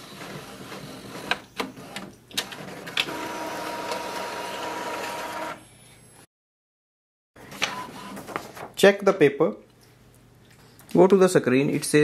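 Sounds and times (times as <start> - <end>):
printer whirring: 0.0 - 5.6.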